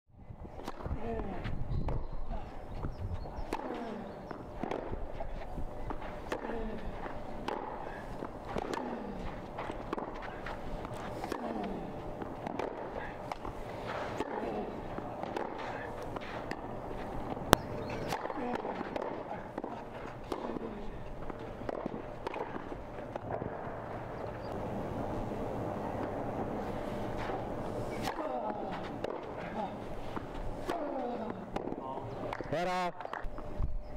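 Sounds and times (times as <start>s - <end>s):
outdoor court ambience: 0.5s - 33.9s
tennis ball bouncing: 3.4s - 24.6s, 27.2s - 33.3s
tennis racket strikes: 7.4s - 23.6s.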